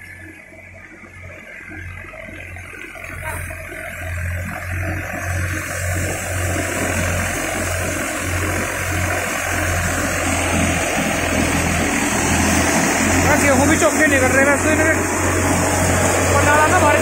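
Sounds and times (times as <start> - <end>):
tractor diesel engine throbbing: 0.0 - 17.0
thresher drum and fan rushing: 5.0 - 17.0.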